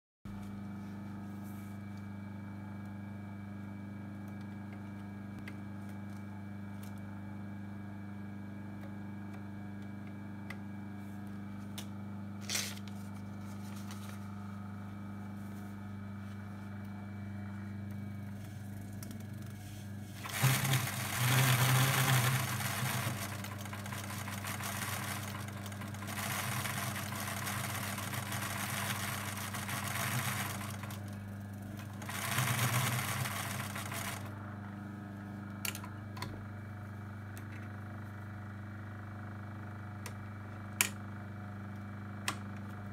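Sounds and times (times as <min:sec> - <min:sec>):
sewing machine stitching: 0:20.1 - 0:34.4.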